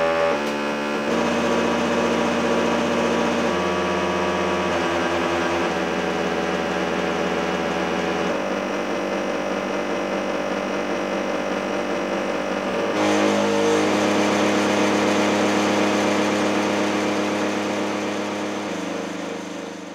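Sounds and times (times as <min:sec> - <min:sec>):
drone of held tones: 0:12.2 - 0:19.9.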